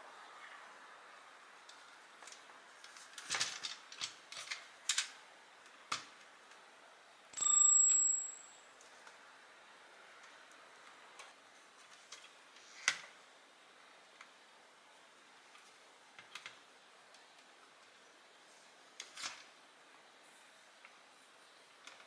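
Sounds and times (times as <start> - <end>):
clicks and knocks of parts handled: 2.2 - 5.2
bright metallic ring: 7.4 - 8.7.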